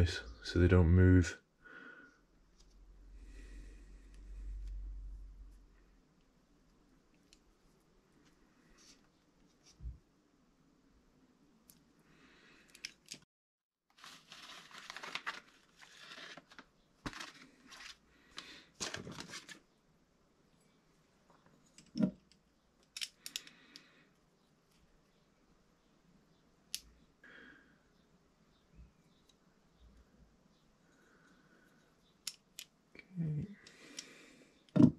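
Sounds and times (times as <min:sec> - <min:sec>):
small parts clicking: 0:12.6 - 0:13.2, 0:21.8 - 0:23.9, 0:32.2 - 0:32.8
crinkling rustling handling noise: 0:13.9 - 0:19.7.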